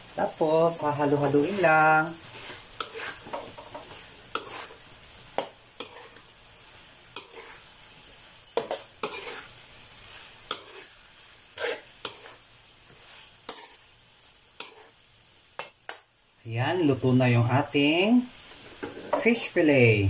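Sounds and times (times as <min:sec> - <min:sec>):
low sizzle from a pan: 0:00.0 - 0:20.0
spatula scraping a wok: 0:01.0 - 0:15.9, 0:18.4 - 0:19.5.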